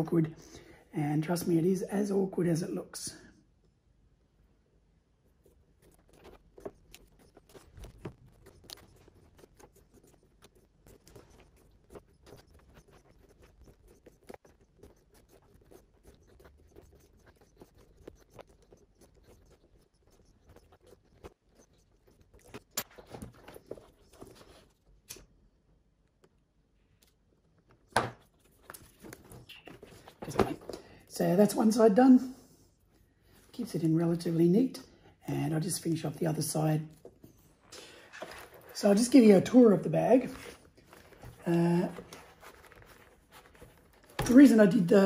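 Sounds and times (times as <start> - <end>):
thread scratching through leather: 5.2 - 24.9, 28.0 - 30.7, 36.9 - 45.0.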